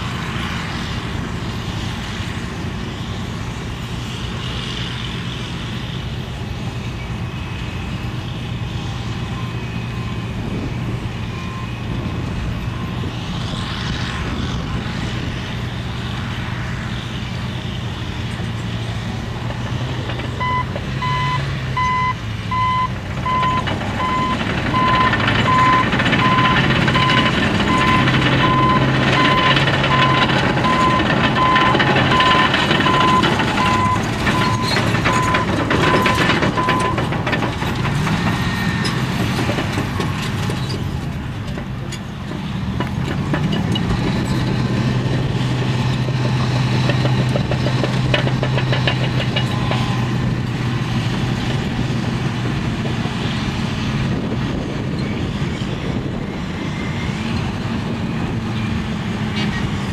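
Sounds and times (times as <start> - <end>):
heavy diesel engines droning: 0.0 - 59.9
backup alarm beeping: 20.4 - 37.0
steel tracks clattering: 22.9 - 50.8.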